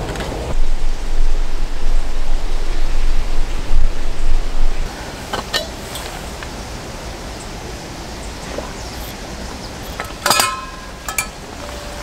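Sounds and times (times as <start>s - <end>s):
metal pot clinking against hook: 10.0s - 12.0s.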